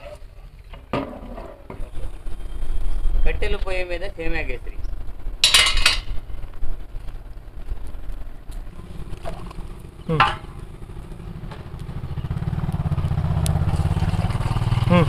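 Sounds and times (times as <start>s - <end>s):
small engine throbbing: 6.2s - 15.0s.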